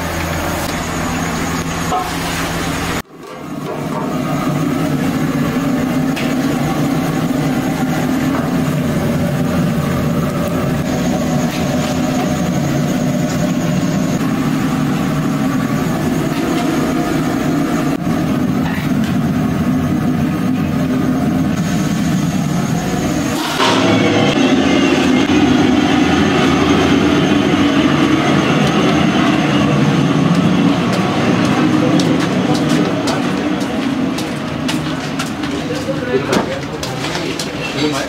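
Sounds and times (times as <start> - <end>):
steady low rumble: 0.0 - 37.6.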